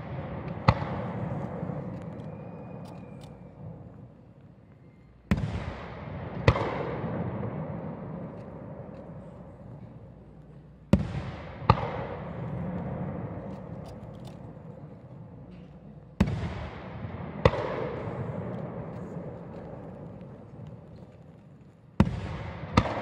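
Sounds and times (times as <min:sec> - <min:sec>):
firework bangs with rolling echo: 0:00.0 - 0:02.8, 0:05.3 - 0:09.5, 0:10.9 - 0:13.8, 0:16.2 - 0:20.7, 0:22.0 - 0:23.0.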